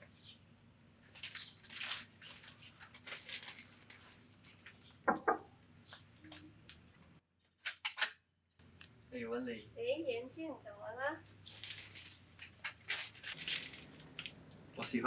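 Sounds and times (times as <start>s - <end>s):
paper wrapping rustling: 1.1s - 4.8s, 11.4s - 14.4s.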